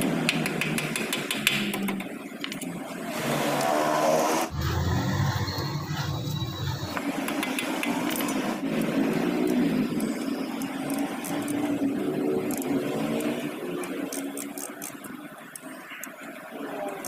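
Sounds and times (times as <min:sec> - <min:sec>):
ratchet wrench clicking: 0:12.4 - 0:15.0.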